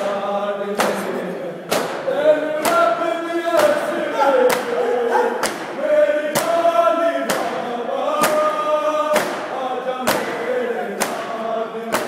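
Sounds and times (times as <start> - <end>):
crowd of men chanting: 0.0 - 12.0
hands beating chests: 1.7 - 3.0, 3.6 - 6.6, 7.3 - 12.0.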